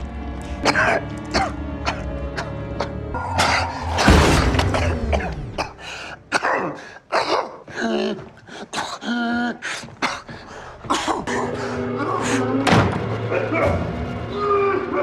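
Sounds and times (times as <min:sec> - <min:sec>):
man coughing and gasping: 0:04.6 - 0:09.1, 0:09.8 - 0:11.5.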